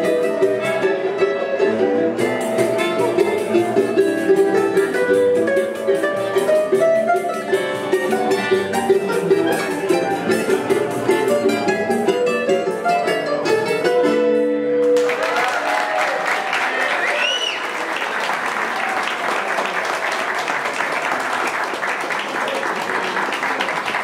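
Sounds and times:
plucked string ensemble: 0.0s - 15.3s
audience applause: 14.8s - 24.0s.

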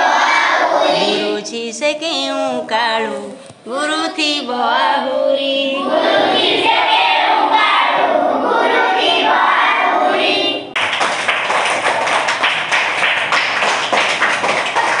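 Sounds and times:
girls singing together: 0.0s - 10.8s
hands clapping in applause: 10.8s - 15.0s.

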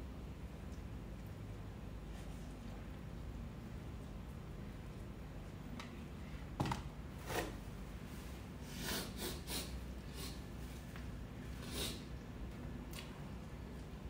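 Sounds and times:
person sniffing: 8.6s - 10.5s, 11.6s - 12.1s.

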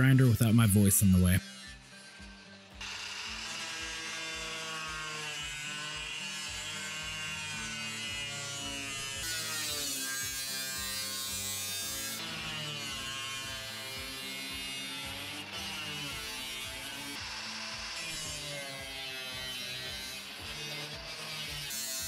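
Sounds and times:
angle grinder cutting metal: 0.0s - 22.0s.

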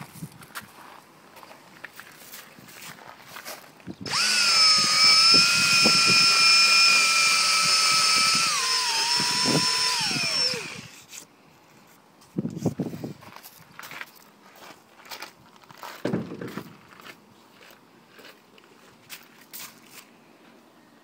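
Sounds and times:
cordless drill buffing rubber: 4.0s - 11.1s.

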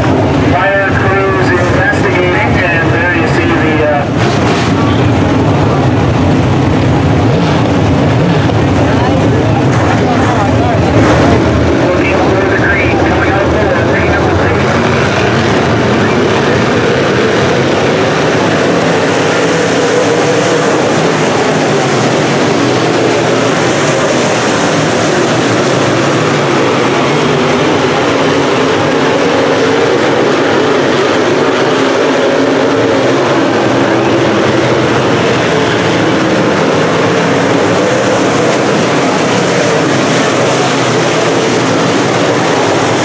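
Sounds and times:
race car engines droning: 0.0s - 43.0s.

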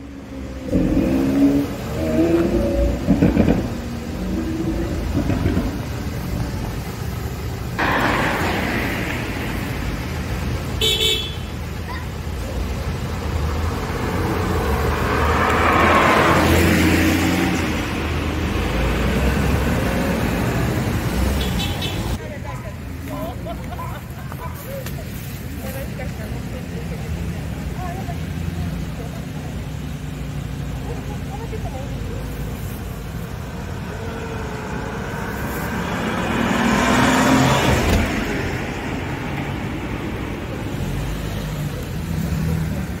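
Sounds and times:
traffic noise: 0.0s - 43.0s
vehicles pulling away: 0.0s - 43.0s
sports car driving past: 7.8s - 10.4s, 13.7s - 20.5s.

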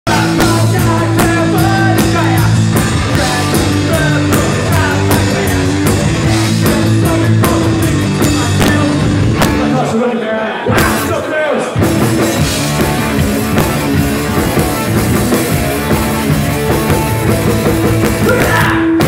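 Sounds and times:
bass guitar: 0.0s - 10.1s, 10.7s - 19.0s
man singing: 0.0s - 12.5s, 18.1s - 19.0s
drums keeping a steady beat: 0.1s - 9.9s, 10.7s - 19.0s
electric guitar: 0.1s - 10.0s, 11.8s - 19.0s.

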